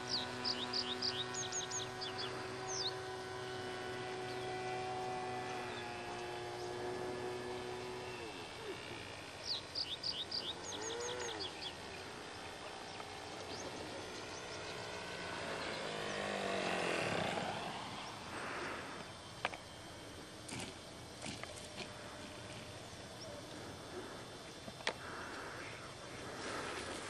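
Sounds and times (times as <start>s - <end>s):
bird chirping: 0.0s - 3.4s, 4.0s - 18.3s
model plane engine drone: 0.0s - 27.0s.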